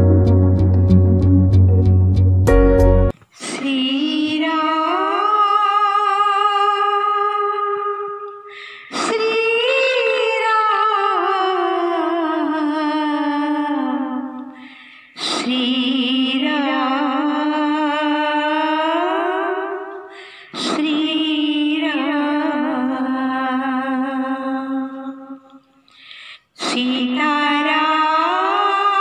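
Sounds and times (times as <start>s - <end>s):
woman singing unaccompanied: 3.4s - 14.6s, 15.2s - 25.6s, 26.6s - 29.0s
woman breathing: 8.5s - 9.0s, 14.6s - 15.2s, 20.0s - 20.6s, 25.8s - 26.6s.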